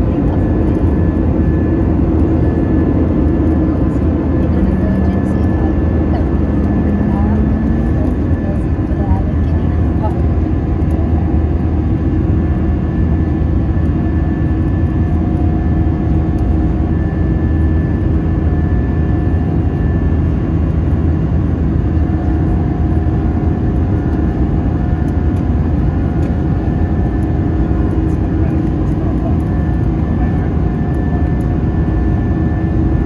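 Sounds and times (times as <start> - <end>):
steady hums: 0.0 - 18.4
jet engine drone: 0.0 - 33.0.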